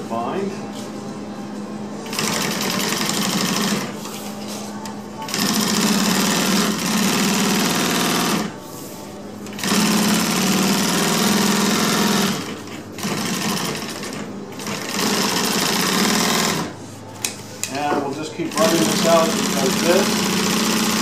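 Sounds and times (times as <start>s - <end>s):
industrial sewing machine stitching: 2.1s - 3.9s, 5.3s - 8.5s, 9.5s - 16.7s, 18.5s - 21.0s.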